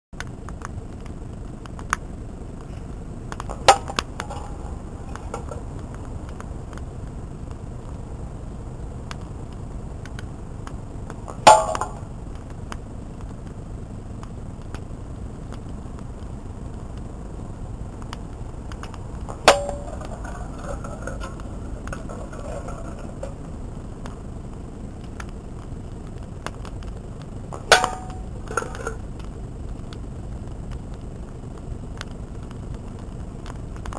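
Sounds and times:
pellets hitting metal cans: 0:27.7 - 0:28.9.

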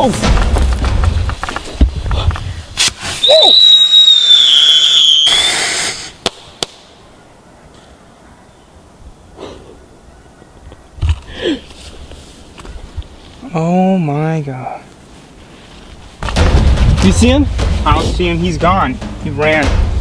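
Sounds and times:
firework hiss: 0:02.7 - 0:06.7
whistling firework: 0:03.2 - 0:06.4
sharp firework cracks: 0:06.2 - 0:07.0.

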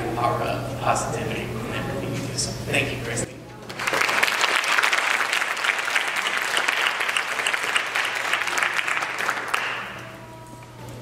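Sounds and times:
audience applauding: 0:03.7 - 0:10.2.

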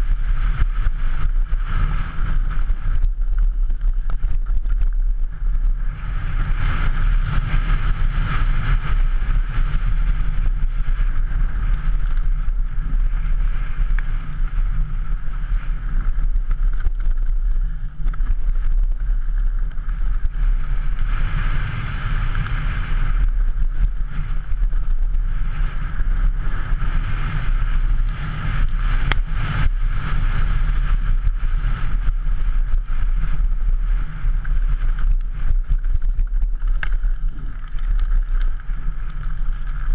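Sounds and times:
bike rattling: 0:00.0 - 0:39.9
wind buffeting microphone: 0:00.0 - 0:39.9
rocks knocking and clattering: 0:16.0 - 0:20.4, 0:34.5 - 0:39.9
tyres crunching over rocks: 0:35.8 - 0:39.9.

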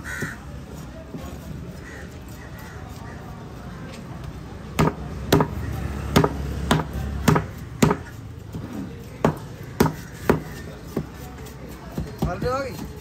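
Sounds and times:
knife chopping on wooden block: 0:04.7 - 0:08.2, 0:09.2 - 0:11.2.

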